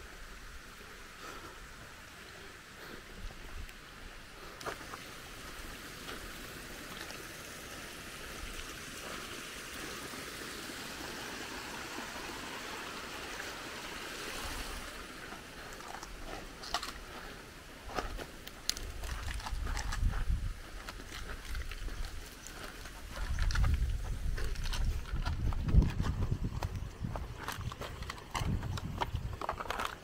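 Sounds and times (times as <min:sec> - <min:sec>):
stream water rushing: 0:00.0 - 0:19.6.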